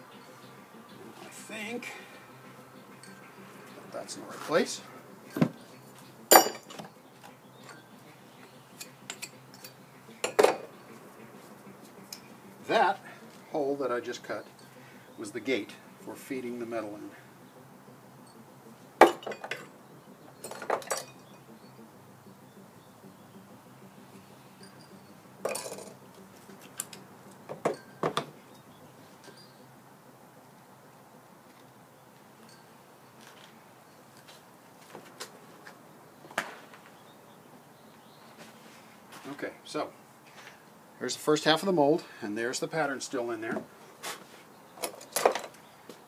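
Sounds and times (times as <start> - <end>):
hand tool clinking on metal: 6.3 - 6.9, 8.8 - 10.7, 19.0 - 19.8, 20.4 - 21.3, 24.6 - 28.3.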